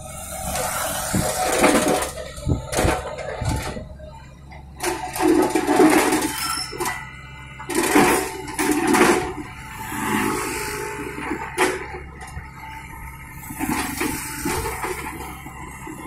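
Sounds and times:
excavator engine hum: 0.0s - 16.0s.

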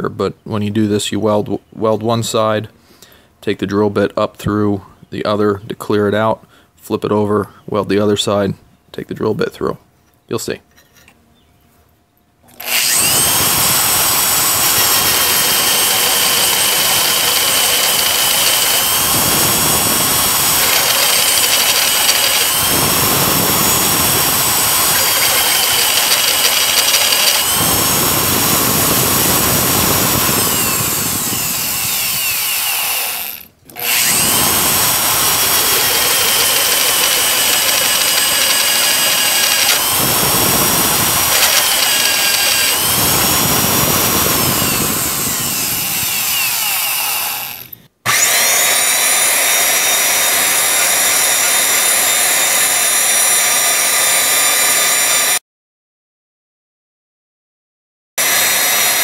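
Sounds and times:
drill press motor whine: 12.5s - 55.4s, 58.2s - 59.0s
grinding metal cutting: 12.5s - 55.4s, 58.2s - 59.0s.

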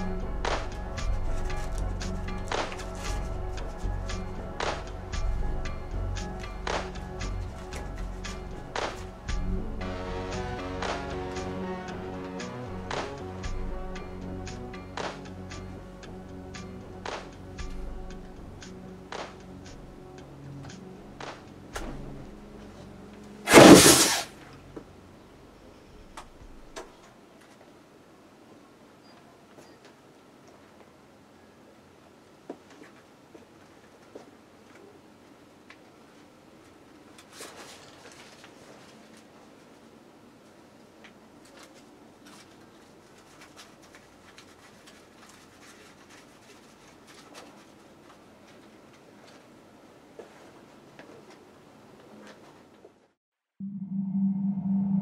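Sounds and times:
low steady hum: 0.0s - 23.5s, 53.6s - 55.0s
flame whoosh: 23.5s - 24.3s
banknotes rustling and clicking: 41.1s - 49.5s.

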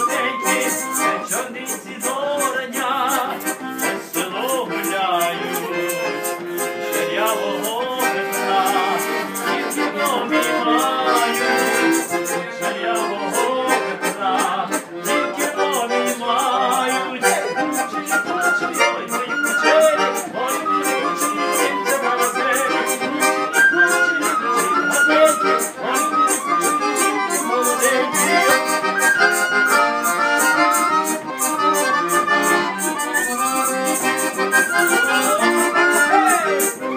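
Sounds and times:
folk music with button accordion: 0.0s - 36.9s
crisp regular beat: 26.6s - 36.9s.

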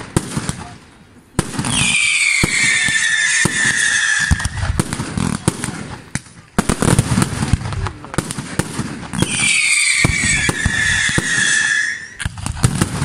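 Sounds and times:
firework bangs: 0.0s - 13.0s
firework whistle sliding down: 1.7s - 4.7s, 9.2s - 12.3s.

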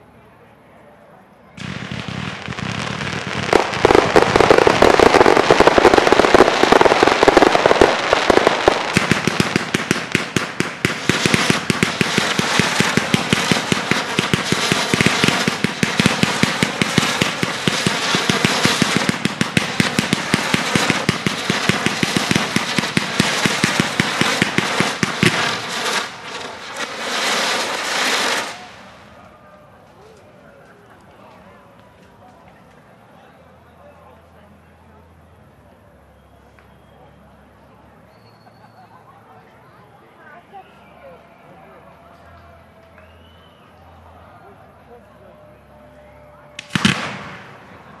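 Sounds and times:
fireworks bursts and crackling: 1.6s - 29.2s, 46.6s - 48.0s
heavy fireworks booms: 1.6s - 29.2s, 46.6s - 48.0s.

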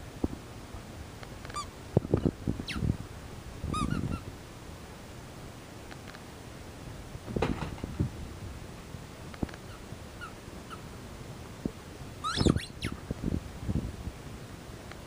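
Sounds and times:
thumps and knocks: 7.3s - 8.0s
puppy whimpers: 12.2s - 12.8s
puppy yelp: 12.2s - 13.0s.

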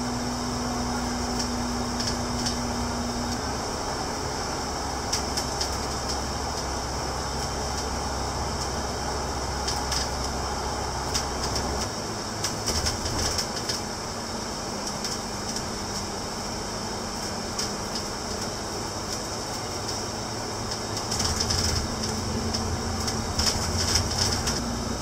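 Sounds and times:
bus engine and road noise: 0.0s - 25.0s
bodywork rattles and clicks: 20.7s - 24.6s.

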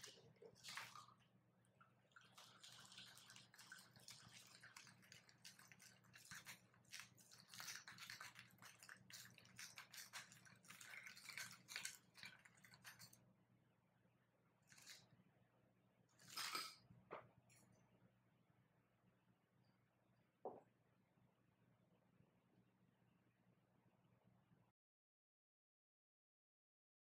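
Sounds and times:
liquid trickling into glass: 1.8s - 13.2s.

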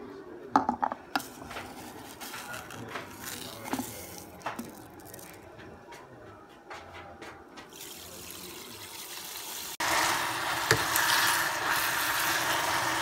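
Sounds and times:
cookware clinking and knocking: 0.5s - 4.8s.

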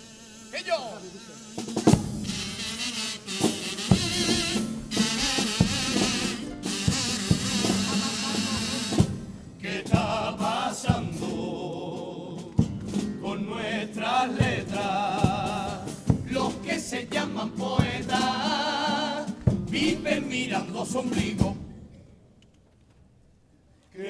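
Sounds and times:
drum hits: 1.6s - 2.7s, 3.4s - 11.5s, 14.4s - 18.5s, 19.2s - 20.3s
male chorus singing: 9.6s - 21.7s.

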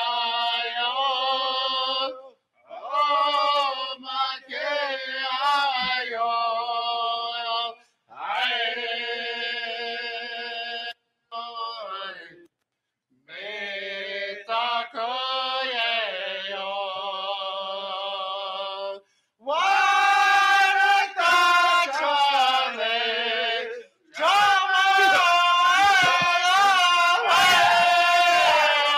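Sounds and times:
group chanting: 2.7s - 6.2s, 8.1s - 10.0s, 13.3s - 17.0s, 18.8s - 28.9s.

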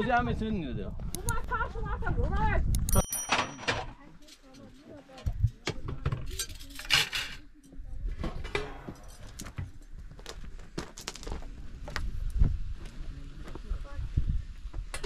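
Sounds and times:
kitchenware clinking: 2.9s - 4.7s.

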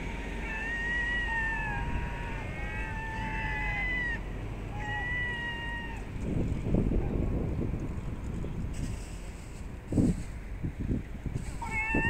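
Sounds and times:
gulls mewing calls: 0.0s - 6.1s, 11.6s - 12.0s
wind buffeting microphone: 0.0s - 12.0s.

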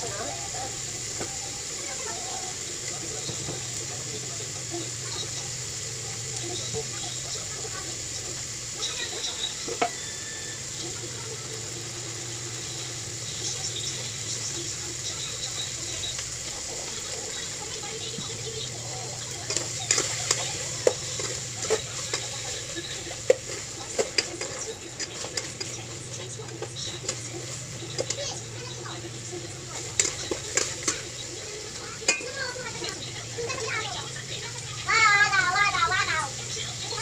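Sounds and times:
food sizzling in a pan: 0.0s - 37.0s
utensil clinking against pan: 19.4s - 28.2s, 29.9s - 31.2s, 32.0s - 33.6s.

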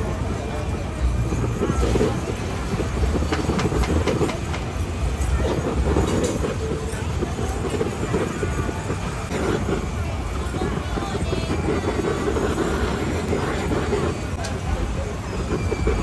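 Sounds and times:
butane torch burning: 0.0s - 16.0s.

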